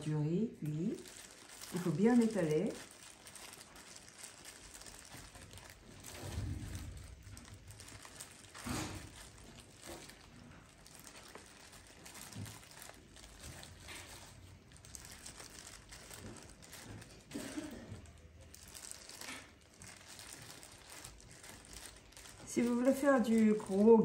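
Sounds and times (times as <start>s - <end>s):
plastic gloves crinkling: 0.0s - 24.0s.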